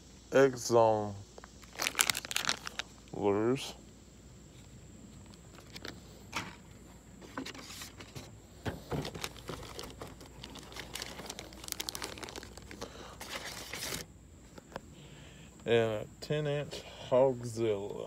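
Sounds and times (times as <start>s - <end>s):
packaging crinkling: 1.6s - 3.0s, 9.0s - 14.1s.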